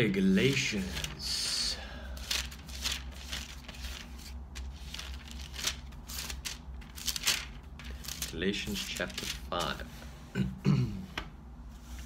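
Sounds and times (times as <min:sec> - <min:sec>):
book pages rustling: 0:00.3 - 0:01.3, 0:02.2 - 0:10.1.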